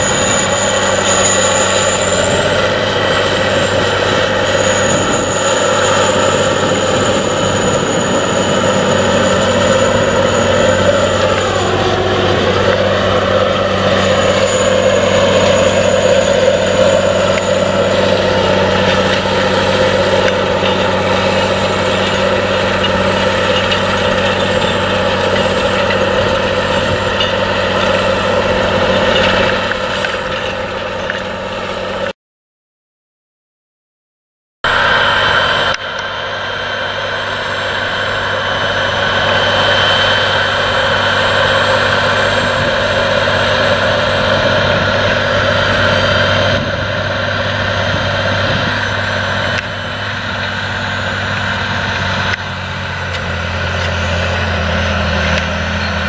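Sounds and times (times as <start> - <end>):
thin high whine: 0.0 - 32.1
tractor diesel engine drone: 0.0 - 32.2, 34.6 - 56.0.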